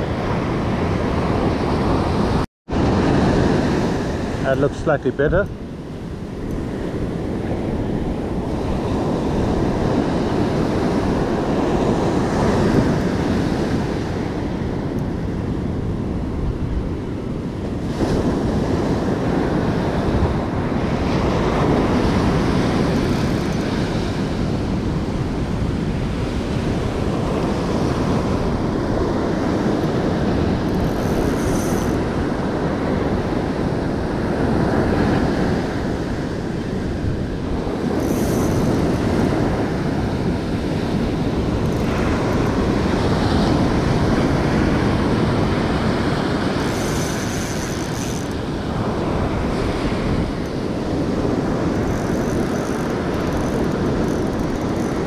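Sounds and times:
ocean surf breaking: 0.0s - 15.7s, 17.8s - 55.0s
wind buffeting the microphone: 0.0s - 55.0s.

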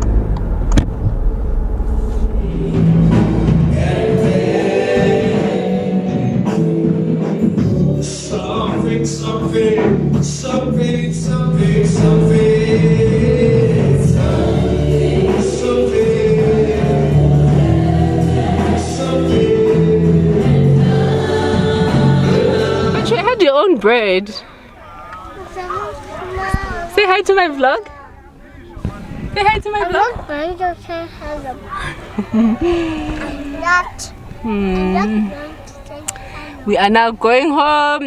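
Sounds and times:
gospel choir singing: 1.8s - 25.2s.

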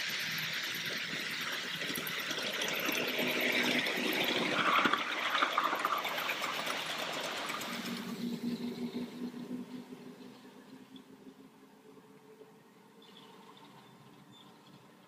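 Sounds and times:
miniature train wheels rumbling on rails: 0.0s - 10.4s.

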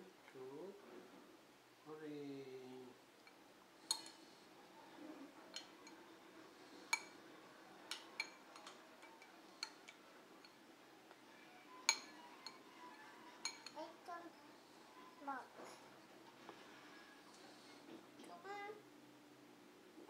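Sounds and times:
spoon clinking against ceramic bowl: 3.3s - 4.2s, 6.9s - 7.2s, 7.9s - 10.6s, 11.8s - 12.8s, 13.4s - 13.8s.

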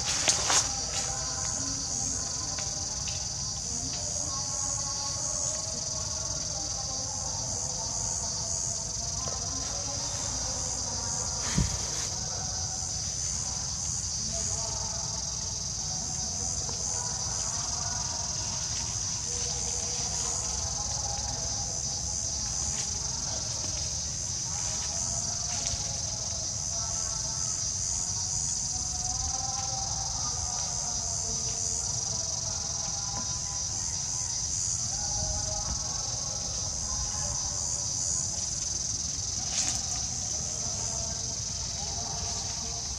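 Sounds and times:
insects droning: 0.0s - 42.9s.

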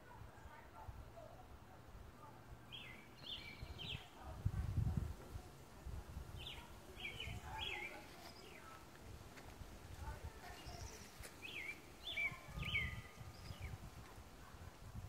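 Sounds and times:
songbird chirping: 0.0s - 15.0s.

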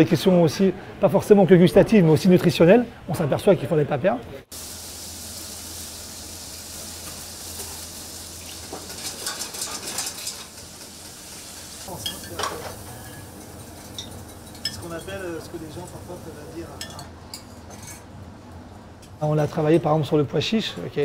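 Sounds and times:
food sizzling in pots: 4.5s - 17.5s
metal pots and utensils clinking: 8.4s - 11.2s, 11.8s - 16.0s, 16.8s - 18.1s.

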